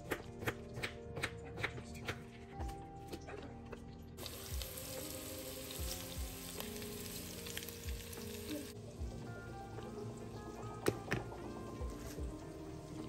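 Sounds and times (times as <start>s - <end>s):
potatoes sizzling in a pot: 4.2s - 13.0s.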